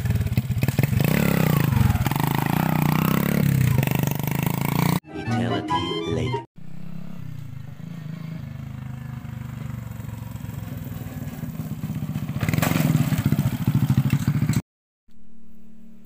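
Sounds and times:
small engine pulsing: 6.6 - 14.6.

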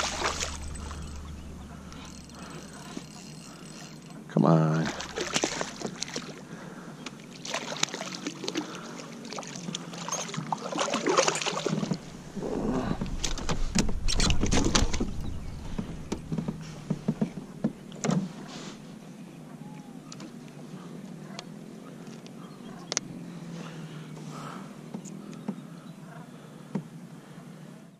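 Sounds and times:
rumbling handling noise: 0.0 - 6.5, 11.7 - 18.9
water splashing: 0.0 - 6.6, 7.3 - 18.0
fish flapping against kayak hull: 4.9 - 6.4, 12.8 - 18.5
knocks and clicks: 13.0 - 18.2.

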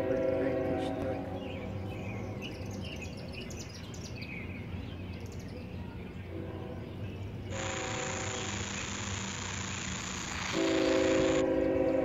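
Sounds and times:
faint train horn: 0.0 - 2.2, 6.2 - 8.5, 10.5 - 12.0
diesel locomotive hum: 0.0 - 12.0
songbirds chirping: 0.0 - 12.0.

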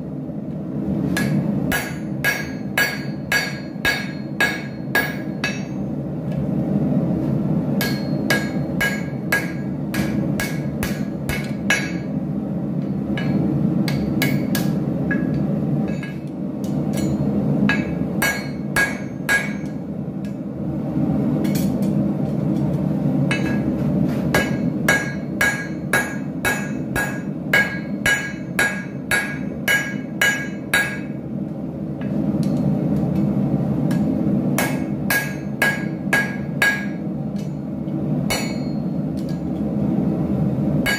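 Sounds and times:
hammer striking metal on anvil: 1.1 - 5.9, 7.8 - 12.2, 13.1 - 20.4, 23.3 - 31.2, 33.9 - 37.7, 38.3 - 39.6.

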